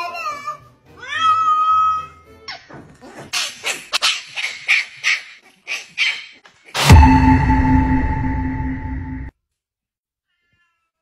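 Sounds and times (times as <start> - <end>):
puppy yapping: 2.5 - 6.4.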